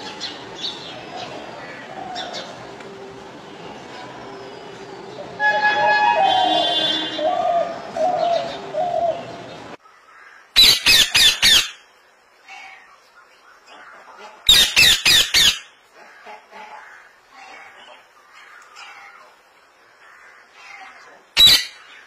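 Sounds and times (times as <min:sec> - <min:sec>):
dove cooing: 0:06.2 - 0:09.6
parakeet screeching: 0:10.6 - 0:11.8, 0:14.5 - 0:15.7, 0:20.6 - 0:21.8.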